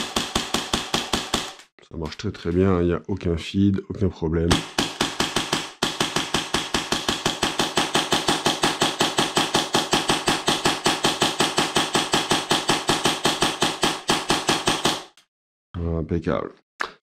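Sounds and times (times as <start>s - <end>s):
airsoft pistol firing: 0.0s - 1.6s, 4.5s - 15.2s.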